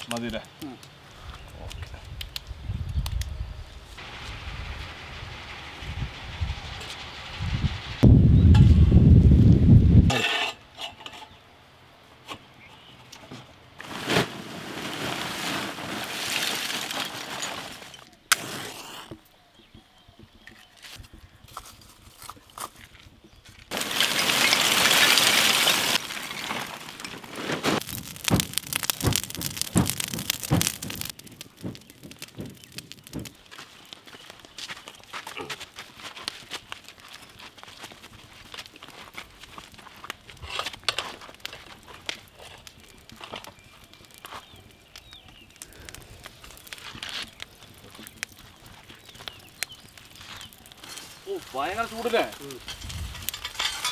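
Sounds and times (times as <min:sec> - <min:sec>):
charcoal fire crackling: 0:00.0 - 0:11.4, 0:12.7 - 0:19.7, 0:20.4 - 0:53.9
sharp clicks and ticks: 0:27.8 - 0:33.5.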